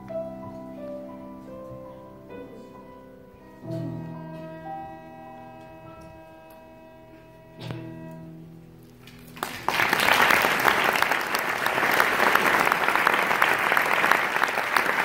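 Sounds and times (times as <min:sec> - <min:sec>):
cello and piano chord: 0:00.0 - 0:08.8
audience applause: 0:09.0 - 0:15.0.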